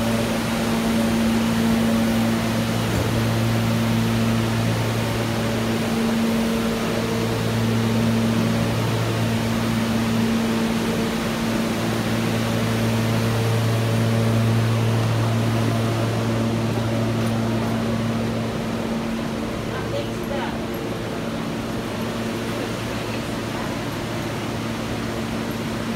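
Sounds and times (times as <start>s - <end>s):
subway car hum: 0.0s - 25.9s.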